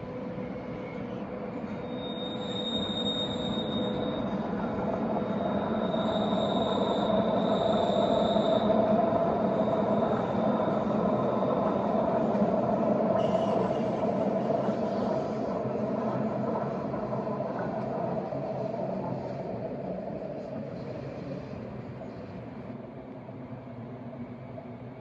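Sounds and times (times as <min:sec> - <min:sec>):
high wheel squeal: 0:01.0 - 0:12.3, 0:13.1 - 0:14.8.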